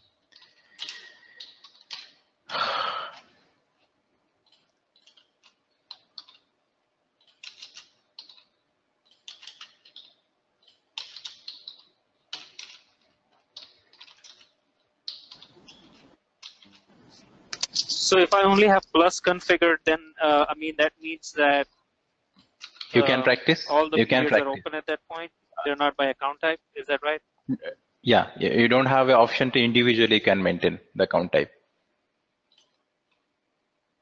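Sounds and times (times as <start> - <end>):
keyboard typing: 0.2 - 2.3, 3.8 - 6.6, 7.2 - 19.4, 22.4 - 23.1.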